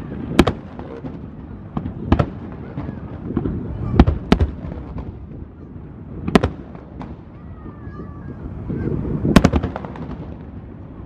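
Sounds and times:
small firework pops: 0:00.3 - 0:05.2, 0:06.2 - 0:07.2, 0:09.3 - 0:10.6.

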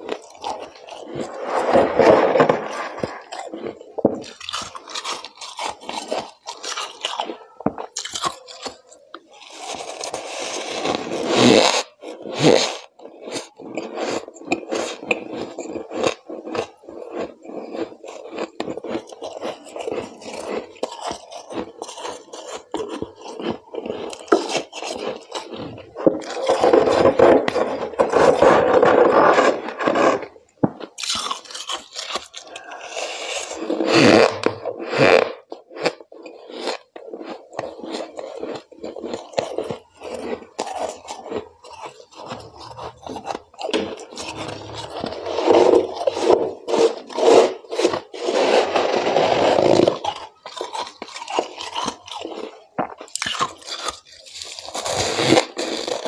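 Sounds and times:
frost being scraped and crunched: 0:00.0 - 0:07.1, 0:09.4 - 0:18.4, 0:23.3 - 0:52.5.

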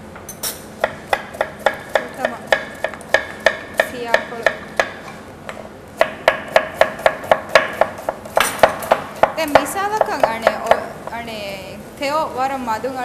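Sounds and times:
knife chopping on plastic board: 0:00.8 - 0:05.1, 0:06.0 - 0:10.9.

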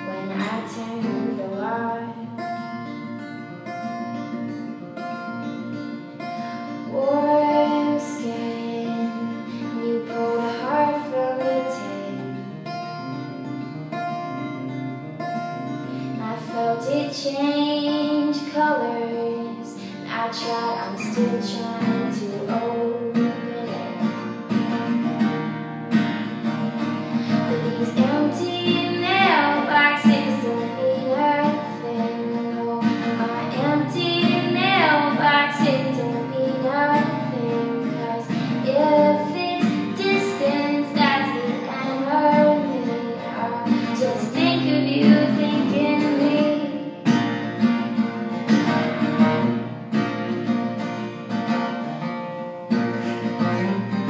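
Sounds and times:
woman singing: 0:00.0 - 0:03.7, 0:06.5 - 0:13.2, 0:15.9 - 0:24.9, 0:26.8 - 0:47.5
acoustic guitar strumming: 0:00.0 - 0:54.0.

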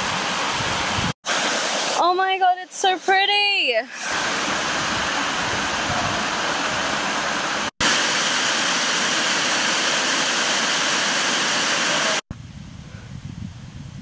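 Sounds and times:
waterfall rushing over rocks: 0:00.0 - 0:02.1, 0:03.9 - 0:12.2.

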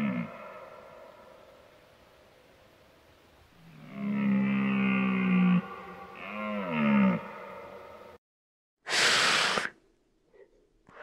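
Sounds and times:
deep animal calls: 0:03.6 - 0:07.8.

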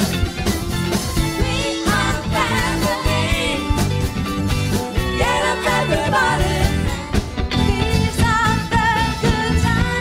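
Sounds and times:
pop band playing: 0:00.0 - 0:10.0
person singing lead vocal: 0:01.4 - 0:03.9, 0:05.0 - 0:10.0.

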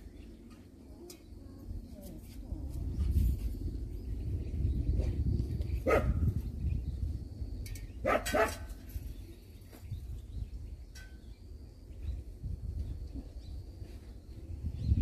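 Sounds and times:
dog barking: 0:05.8 - 0:06.2, 0:08.0 - 0:08.6.

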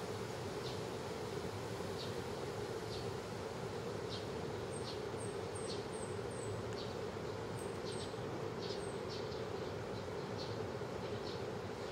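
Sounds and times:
small birds chirping: 0:04.0 - 0:11.9.

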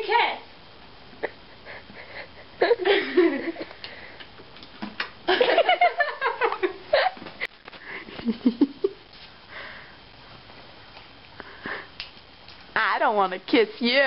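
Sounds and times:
people laughing: 0:01.2 - 0:03.8, 0:05.3 - 0:07.2.

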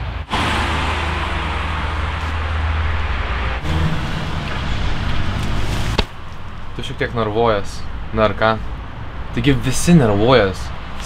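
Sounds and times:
road traffic passing: 0:00.0 - 0:11.0.

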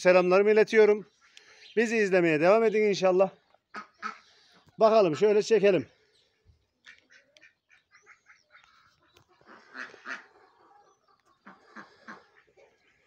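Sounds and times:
ducks quacking: 0:03.6 - 0:05.6, 0:06.8 - 0:13.0.

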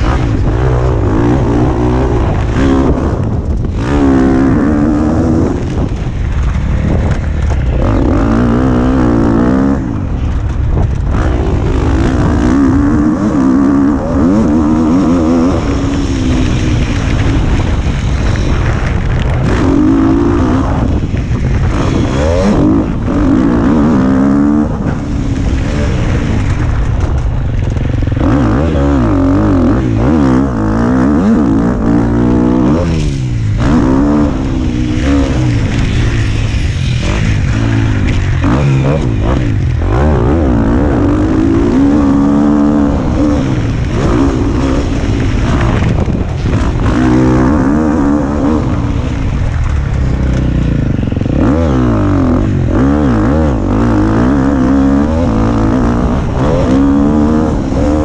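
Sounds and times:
motocross bike engine revving: 0:00.0 - 0:58.0
wind buffeting microphone: 0:00.0 - 0:58.0.

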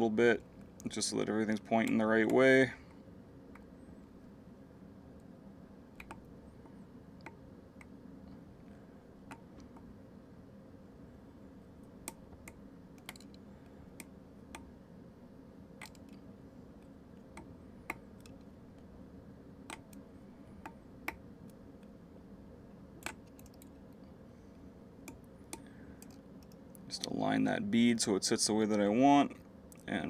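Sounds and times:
low room hum: 0:00.0 - 0:30.0
small clicks of tying tools: 0:12.0 - 0:13.4, 0:15.8 - 0:16.2, 0:25.1 - 0:27.1.

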